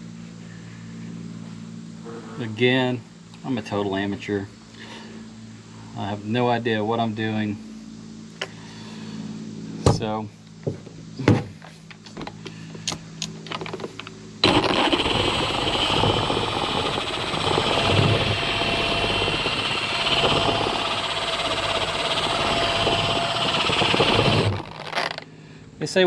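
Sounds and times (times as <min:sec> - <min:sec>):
cordless polisher running: 0:14.4 - 0:25.3.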